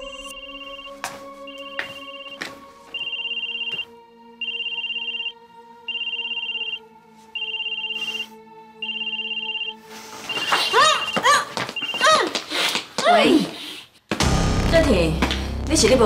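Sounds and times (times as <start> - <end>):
phone ringtone beeps: 0.0 - 6.8, 7.4 - 12.2
soft background music: 0.0 - 11.4.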